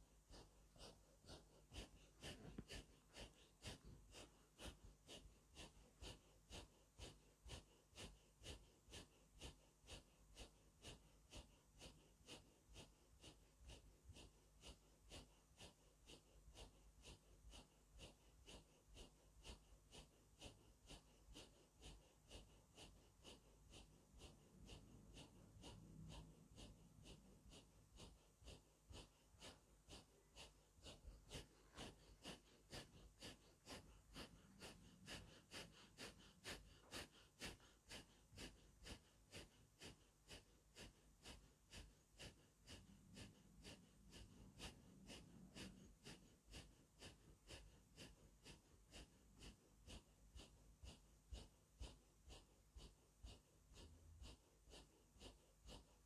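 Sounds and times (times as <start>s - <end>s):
forceful breathing through nose: 0.0s - 56.0s.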